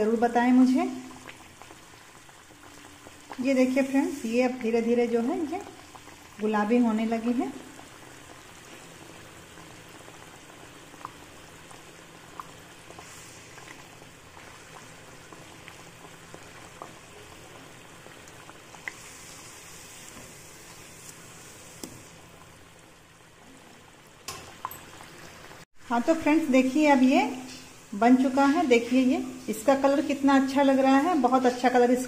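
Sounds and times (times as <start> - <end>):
deep-frying oil sizzling and popping: 0.0 - 32.0.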